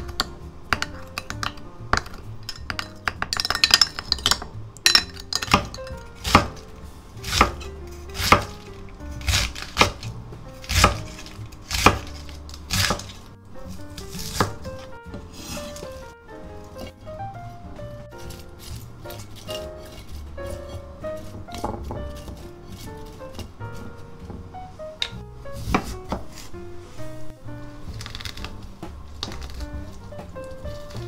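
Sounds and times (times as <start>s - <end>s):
light background music: 0.0s - 31.0s
spoon clinking in a glass: 1.4s - 6.0s
knife slicing on wooden board: 7.2s - 16.1s, 25.6s - 26.6s.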